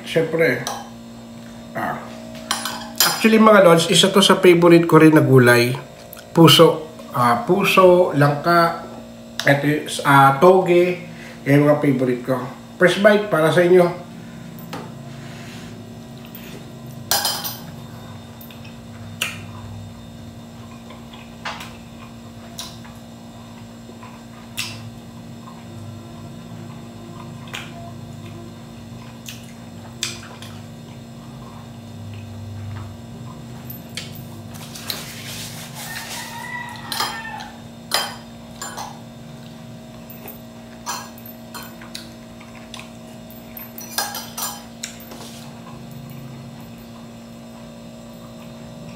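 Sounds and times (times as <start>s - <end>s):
steady low hum: 0.0s - 36.1s, 36.9s - 48.9s
cutlery clinking on a plate: 36.8s - 37.3s, 43.7s - 45.3s.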